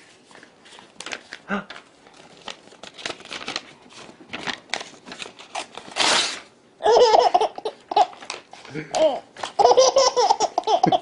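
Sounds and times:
paper rustling: 0.0s - 6.5s
paper tearing: 4.3s - 6.5s
baby laughing: 6.8s - 8.2s, 8.9s - 11.0s.

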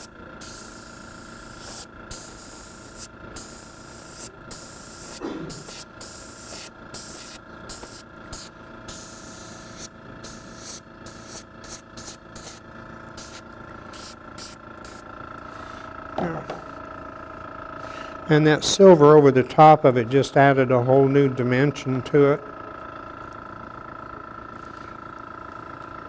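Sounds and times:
airbrush spraying hiss: 0.0s - 15.1s.

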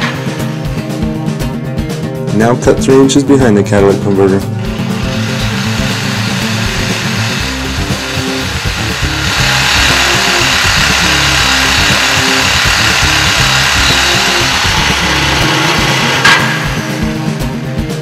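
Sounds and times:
reciprocating saw cutting metal pipe: 4.6s - 17.6s.

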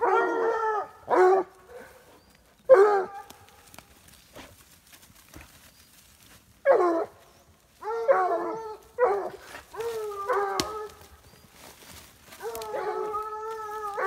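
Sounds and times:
hounds baying: 0.0s - 3.5s, 6.6s - 14.0s.

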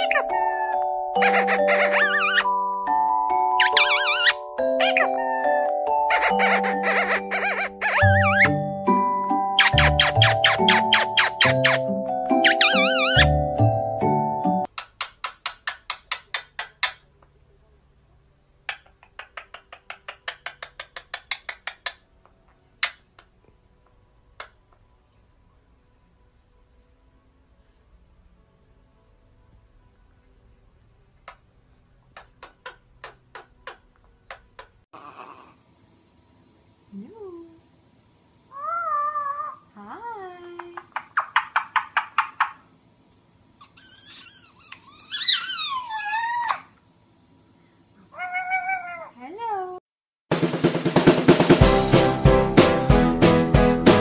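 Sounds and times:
parakeet chattering calls: 0.0s - 2.6s, 3.6s - 8.6s, 9.6s - 13.4s, 14.7s - 17.1s, 18.7s - 22.1s, 40.6s - 42.7s, 43.6s - 46.7s
parakeet clicking: 14.7s - 17.0s, 18.7s - 22.0s, 40.4s - 42.6s.

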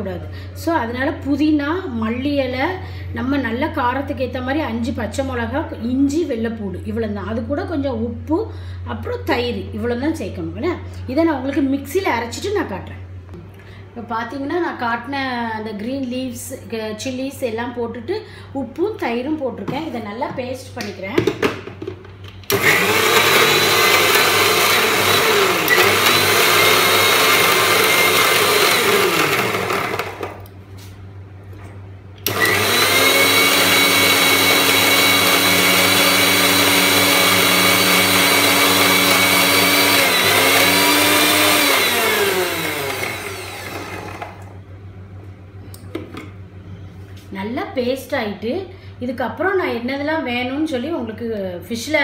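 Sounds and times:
mixer grinder motor running: 22.5s - 30.6s, 32.2s - 44.6s.

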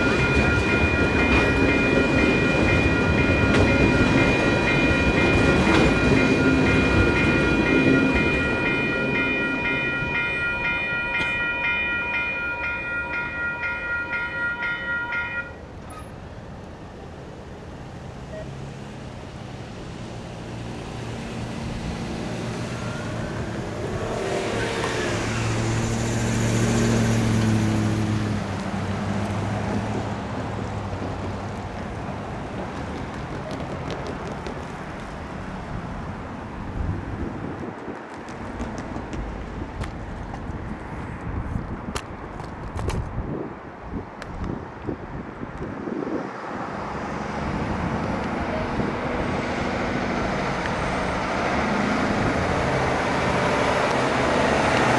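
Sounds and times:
tyre noise: 31.0s - 35.3s.

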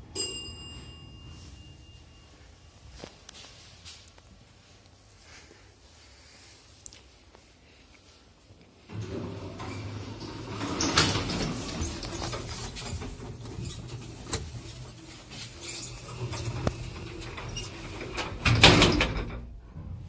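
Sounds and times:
lift doors sliding open: 8.9s - 20.0s.

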